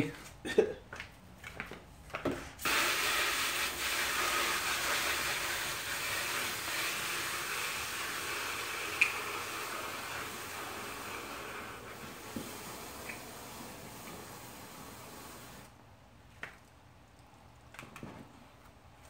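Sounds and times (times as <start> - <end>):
hose nozzle spraying water: 2.6 - 15.7.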